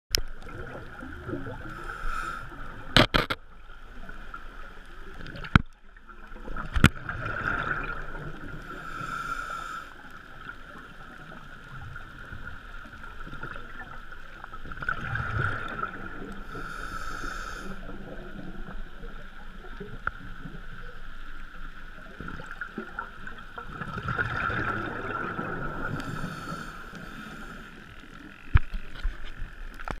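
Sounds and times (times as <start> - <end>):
exhaled bubbles rumbling: 0.1 - 9.0, 10.2 - 16.7, 17.8 - 30.0
scuba regulator breathing: 1.6 - 2.8, 8.6 - 10.3, 16.4 - 18.1, 25.8 - 28.0
clicks on camera housing: 3.0 - 3.4.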